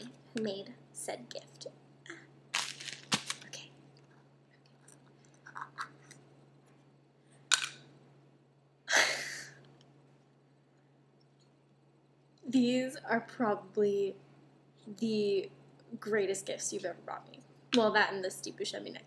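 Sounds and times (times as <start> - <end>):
gift packaging rustling: 2.6 - 3.6.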